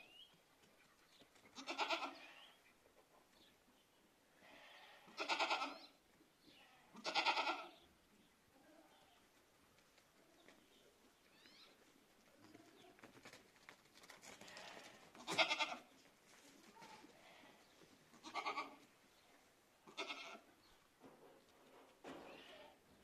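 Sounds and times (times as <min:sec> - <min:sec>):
goats bleating: 0:01.6 - 0:02.5, 0:04.4 - 0:05.8, 0:06.6 - 0:07.8, 0:14.4 - 0:15.9, 0:18.2 - 0:18.8, 0:19.8 - 0:20.4.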